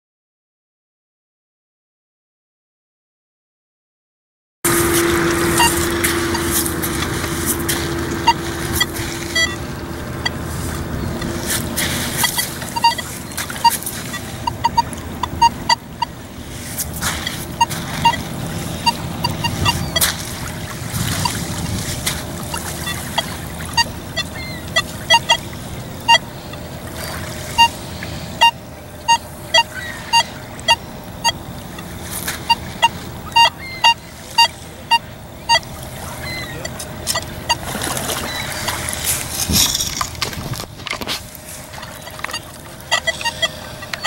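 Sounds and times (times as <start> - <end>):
metal detector beeps: 4.7 - 16.2, 16.8 - 20.3, 22.4 - 44.0
water sloshing around boots: 35.8 - 44.0.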